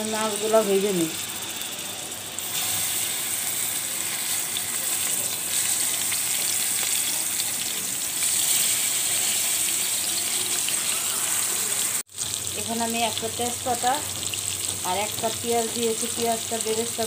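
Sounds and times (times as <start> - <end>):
fish sizzling in oil: 0.0 - 17.0.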